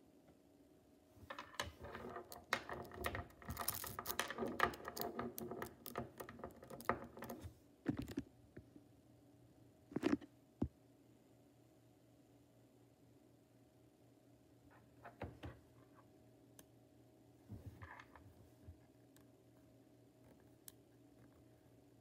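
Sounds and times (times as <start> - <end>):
magnetic metal balls clicking: 1.3 - 7.4.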